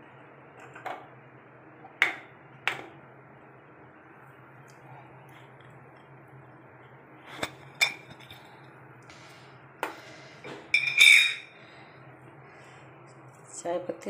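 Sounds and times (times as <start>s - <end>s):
kitchen utensils clinking: 10.7s - 11.6s.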